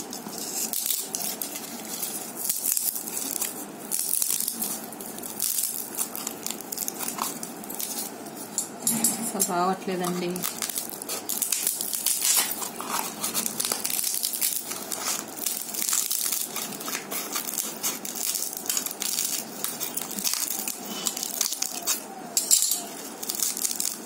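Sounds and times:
scissors cutting dry gourd: 0:09.4 - 0:22.2.

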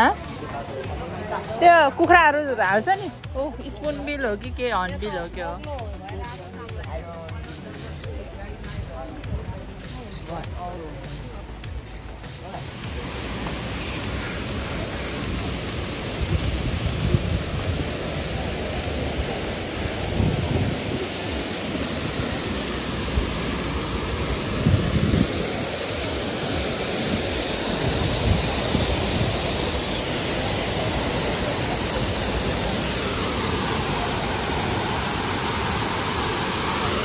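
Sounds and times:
loud rushing noise: 0:05.0 - 0:37.0.

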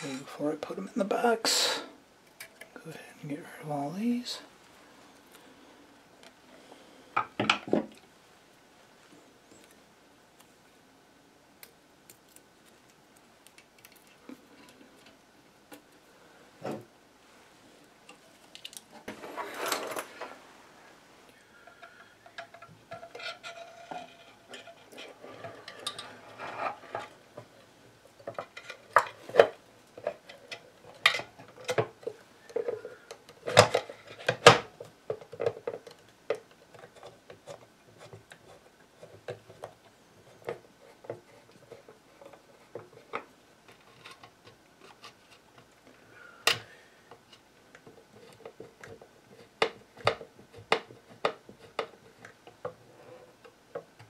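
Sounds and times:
clicks and knocks of handling: 0:21.6 - 0:45.8, 0:46.4 - 0:54.0.

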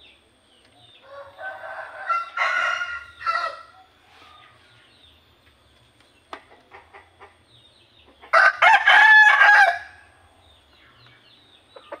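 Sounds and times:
rooster crowing: 0:01.0 - 0:03.8, 0:08.3 - 0:10.1
rooster clucking: 0:06.4 - 0:07.4.

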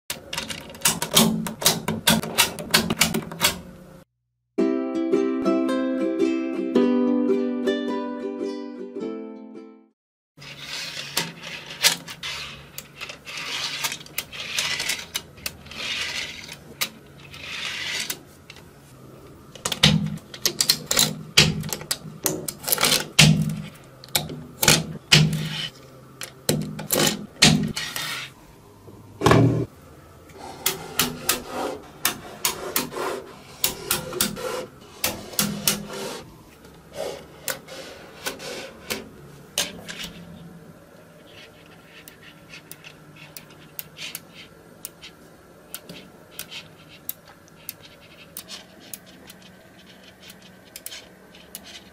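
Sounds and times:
balls sliding and scraping: 0:10.4 - 0:19.0, 0:25.4 - 0:26.0, 0:27.7 - 0:28.4, 0:30.3 - 0:51.9.

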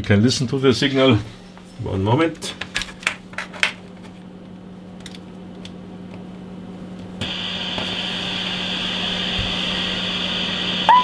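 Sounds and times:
steady low hum: 0:00.0 - 0:11.0
radio receiver hiss: 0:07.2 - 0:11.0.

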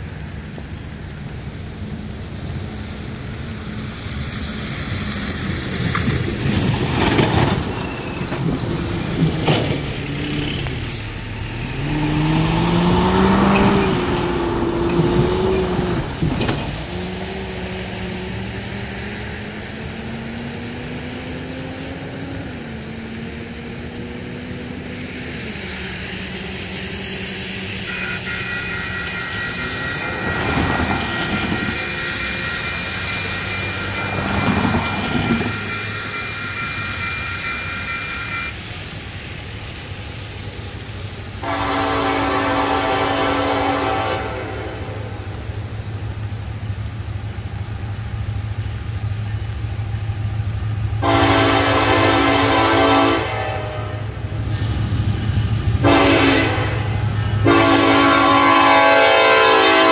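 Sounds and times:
diesel truck engine shifting gears: 0:05.4 - 0:24.8
crossing warning bell ringing: 0:27.7 - 0:39.5.

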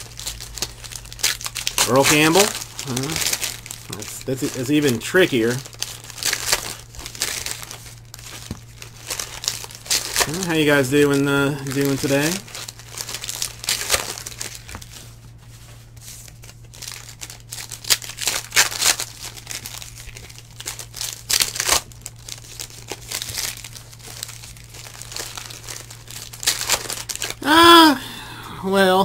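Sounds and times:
foil wrapper tearing and crinkling: 0:00.0 - 0:27.9.

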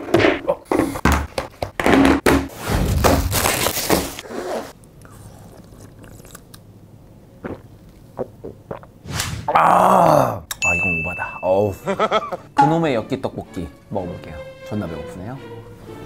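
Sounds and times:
chewing with crisp bites: 0:04.8 - 0:06.7.

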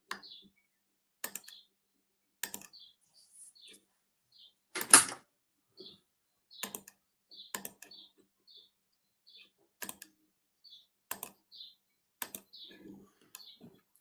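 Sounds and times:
keyboard and mouse clicks: 0:01.2 - 0:01.7, 0:02.4 - 0:02.8, 0:04.8 - 0:05.2, 0:06.6 - 0:08.0, 0:09.8 - 0:10.2, 0:11.1 - 0:11.5, 0:12.2 - 0:14.0.

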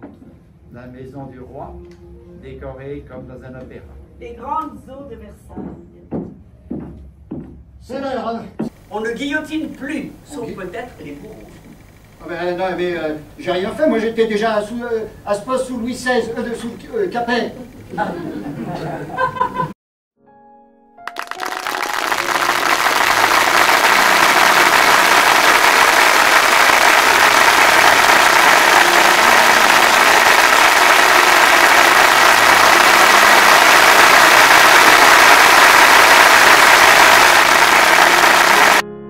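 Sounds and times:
audience applauding: 0:21.0 - 0:38.8.

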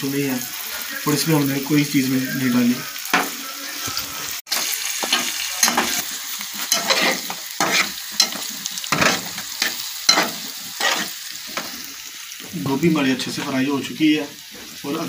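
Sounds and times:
vegetables sizzling in oil: 0:00.0 - 0:15.0
spatula scraping a pan: 0:03.1 - 0:12.0.

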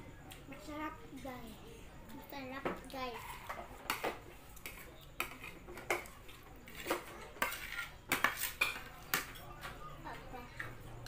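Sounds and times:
spoons clinking on plastic plates: 0:03.1 - 0:09.8.

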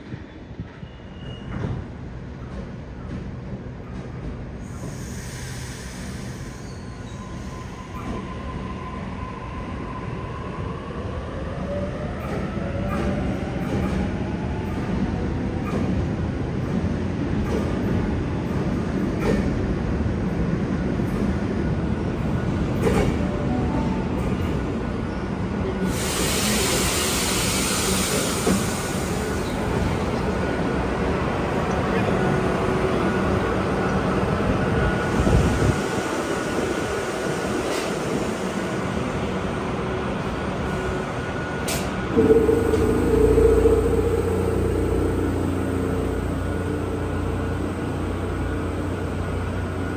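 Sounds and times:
electric locomotive hum and whine: 0:00.0 - 0:49.9
locomotive rumble and hum: 0:39.1 - 0:49.9.

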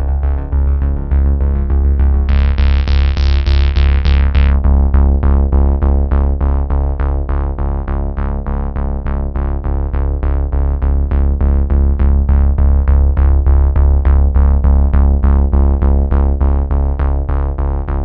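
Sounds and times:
synthesizer music with heavy bass: 0:00.0 - 0:07.6.

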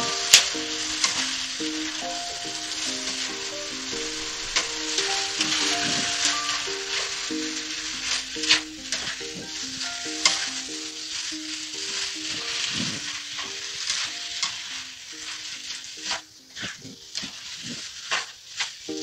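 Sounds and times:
spatula scraping a pan: 0:00.0 - 0:18.8
food sizzling in a pan: 0:00.0 - 0:19.0.

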